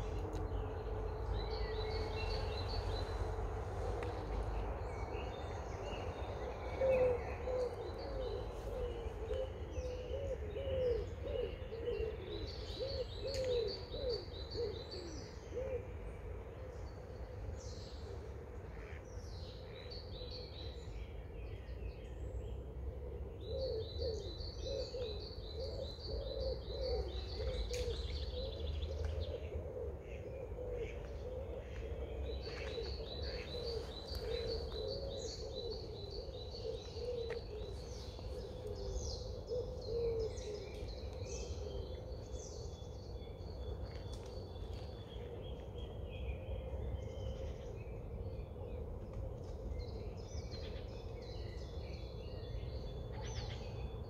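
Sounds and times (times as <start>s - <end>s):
steady low rumble: 0.0s - 9.9s
low repeated bird calls: 0.0s - 21.7s, 22.5s - 54.0s
birds singing trills: 0.0s - 54.0s.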